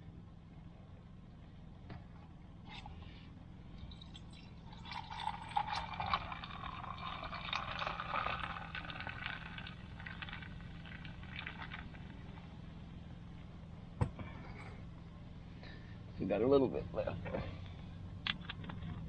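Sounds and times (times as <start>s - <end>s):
soda pouring over ice: 3.8s - 12.2s.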